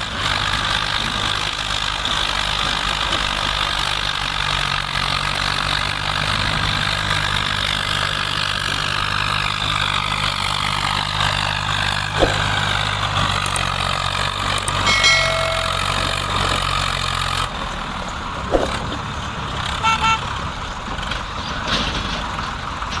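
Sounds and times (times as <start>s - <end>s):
engine whine: 0.0s - 22.2s
tractor diesel engine under load: 0.0s - 23.0s
short high tones: 14.9s - 16.6s.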